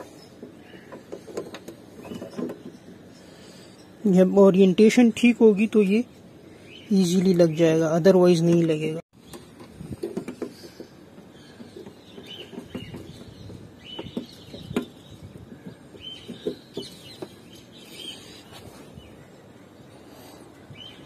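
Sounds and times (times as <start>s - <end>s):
light clicks and knocks: 0.0s - 3.1s
small birds chirping: 0.0s - 21.0s.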